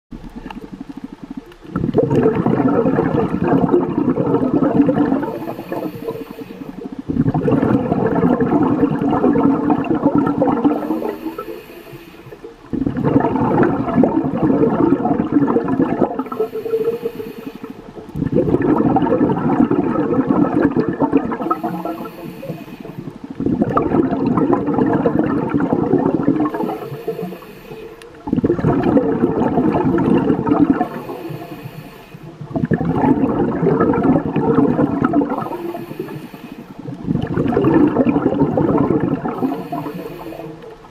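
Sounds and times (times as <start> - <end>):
exhaled bubbles rushing: 0.1 - 40.9
regulator inhale hiss: 5.2 - 7.0, 10.7 - 12.5, 16.2 - 18.0, 21.4 - 23.3, 26.5 - 28.2, 30.8 - 32.4, 35.4 - 37.0, 39.3 - 40.8.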